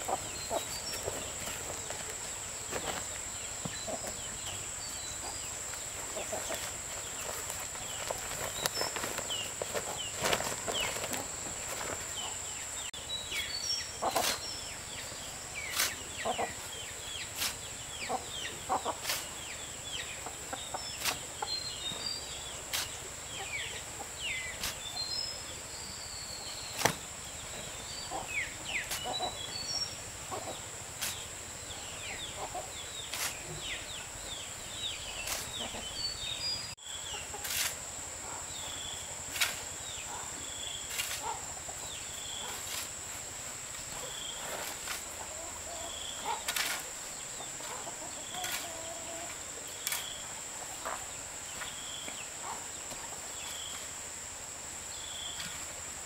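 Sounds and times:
falling bird chirps: 0.0 - 37.8.

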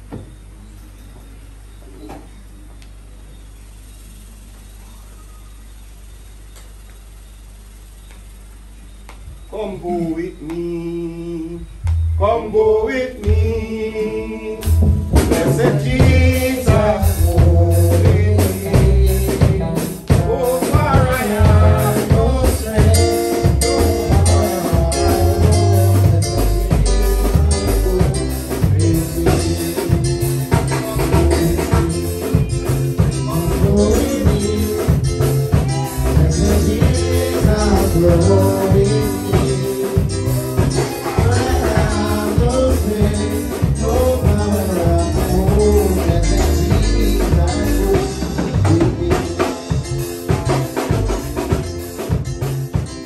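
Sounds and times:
bass line: 0.0 - 53.0
gospel singing: 9.5 - 51.8
steady drum beat: 14.6 - 53.0.

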